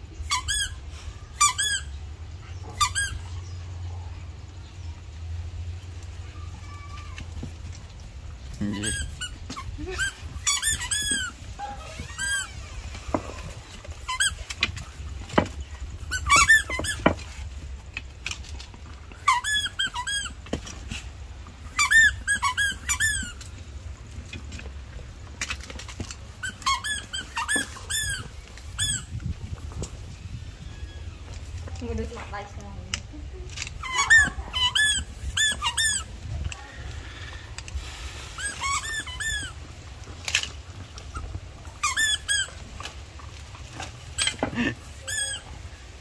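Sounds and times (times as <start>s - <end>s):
squeaky dog toy squeaking: 0.2s - 2.0s, 2.7s - 3.3s, 8.6s - 17.4s, 19.1s - 20.9s, 21.6s - 23.6s, 26.0s - 29.3s, 33.7s - 36.4s, 38.4s - 39.7s, 41.0s - 42.8s, 44.1s - 45.7s.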